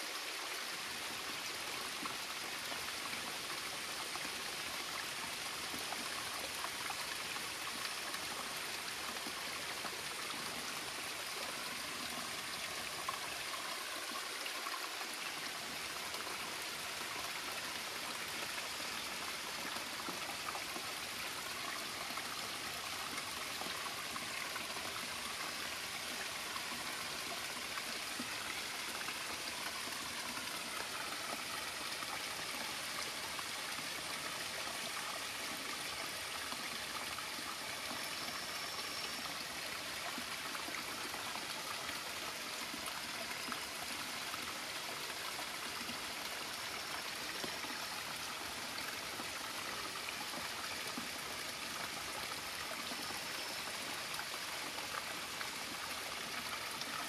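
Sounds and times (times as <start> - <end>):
stream trickling over rocks: 0.0 - 57.0.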